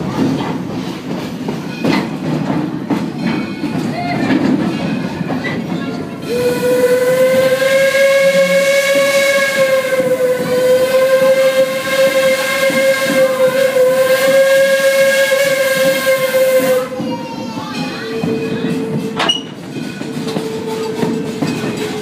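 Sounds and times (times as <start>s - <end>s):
train running on rails: 0.0s - 22.0s
steam locomotive whistle blast: 6.2s - 17.1s.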